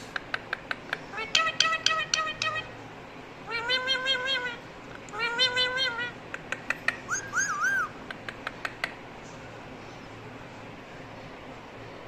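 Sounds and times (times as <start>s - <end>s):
parakeet sharp clicks: 0.1s - 2.6s, 6.3s - 7.1s, 8.1s - 9.0s
parakeet calling: 1.1s - 2.7s, 3.5s - 6.2s, 6.8s - 8.5s.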